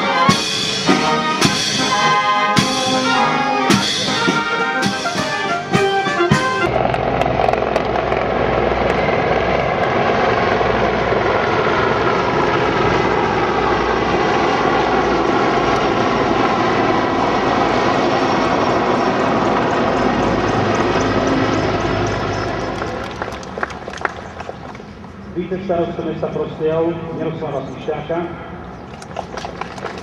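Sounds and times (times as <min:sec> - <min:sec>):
helicopters flying overhead: 0:00.0 - 0:30.0.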